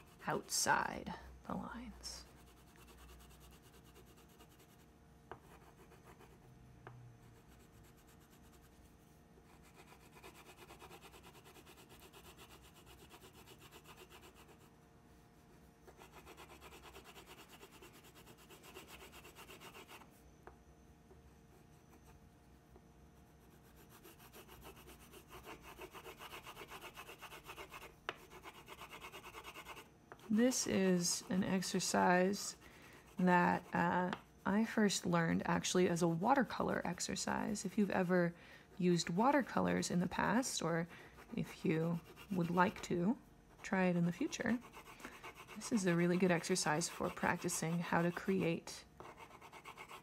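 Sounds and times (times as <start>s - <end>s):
crayon scribbling on paper: 9.5s - 14.7s, 15.9s - 20.0s, 23.7s - 32.0s, 44.1s - 50.0s.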